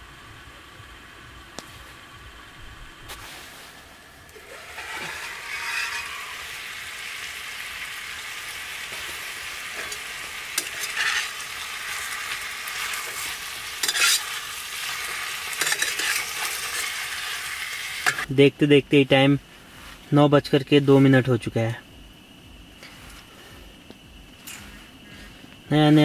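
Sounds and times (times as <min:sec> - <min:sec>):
chicken sizzling in frying pan: 0:00.0 - 0:18.4
spoon scraping pan: 0:04.4 - 0:06.7, 0:08.8 - 0:18.3.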